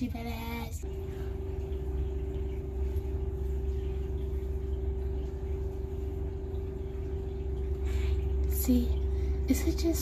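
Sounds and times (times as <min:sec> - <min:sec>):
machine hum: 0:00.0 - 0:10.0.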